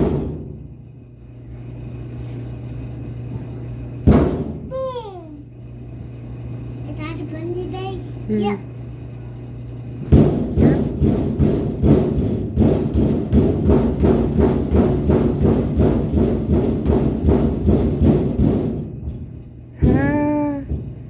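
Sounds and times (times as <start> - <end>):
fists drumming on sheet metal: 0.0 - 0.8, 4.0 - 4.8, 10.0 - 21.0.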